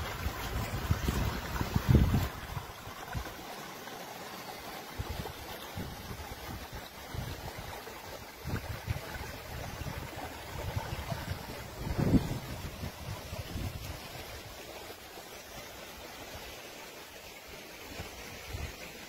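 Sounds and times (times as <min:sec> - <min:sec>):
wind buffeting microphone: 0:00.0 - 0:03.4, 0:04.9 - 0:14.5
water running in channel: 0:00.0 - 0:19.0.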